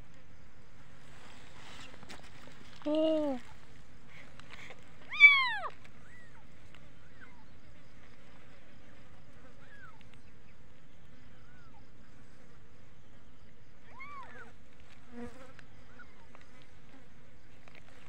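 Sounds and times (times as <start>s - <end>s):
kitten meowing: 5.1s - 5.7s.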